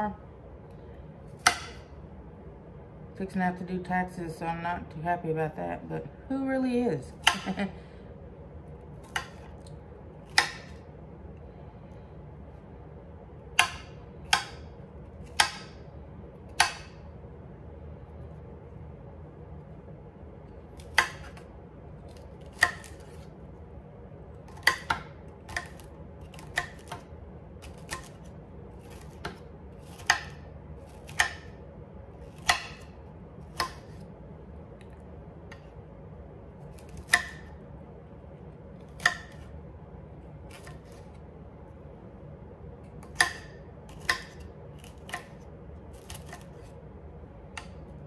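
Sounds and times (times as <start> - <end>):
knife chopping on cutting board: 1.4 - 1.9, 9.0 - 10.8, 13.5 - 15.8, 16.5 - 17.0, 20.8 - 21.4, 22.1 - 23.3, 24.5 - 28.2, 28.8 - 31.6, 32.2 - 34.0, 36.7 - 37.5, 38.8 - 39.5, 40.5 - 41.1, 43.0 - 46.7.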